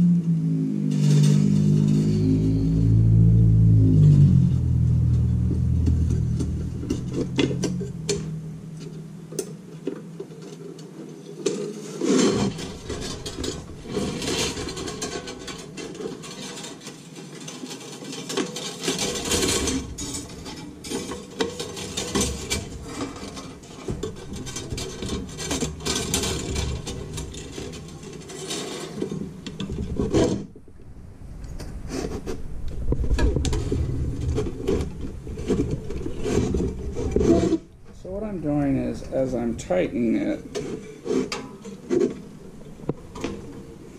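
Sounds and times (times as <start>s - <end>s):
wire scraping against metal: 0.3s - 9.6s, 10.4s - 30.6s, 31.9s - 43.9s
metal grid clinking: 12.4s - 30.4s.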